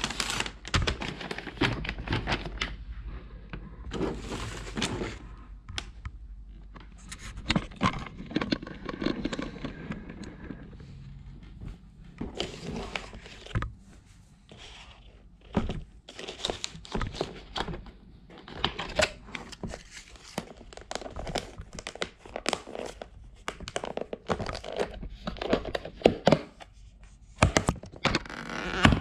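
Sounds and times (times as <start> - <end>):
plastic lids crinkling: 0.0 - 2.8, 15.4 - 26.6.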